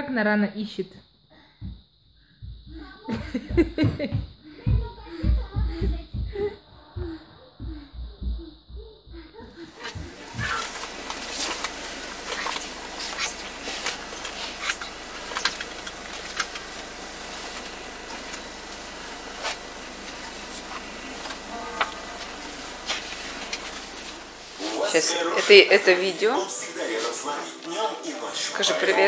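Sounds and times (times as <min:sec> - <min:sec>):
music with thumping beat: 0:01.6 - 0:11.0
bus cabin rumble: 0:02.5 - 0:07.1, 0:07.7 - 0:24.8.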